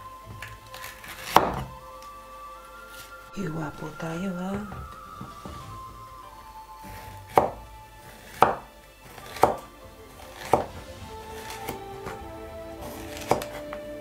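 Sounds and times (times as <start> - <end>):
soft background music: 0.0 - 14.0.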